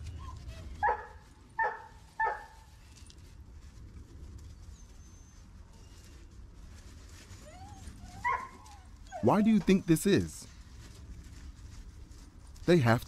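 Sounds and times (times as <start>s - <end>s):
puppy barking: 0.8s - 2.6s, 8.2s - 9.4s.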